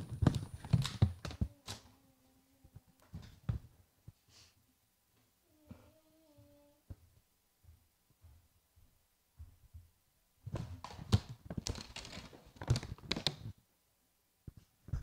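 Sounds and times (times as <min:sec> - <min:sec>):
knocks and bumps of handled objects: 0:00.0 - 0:01.8.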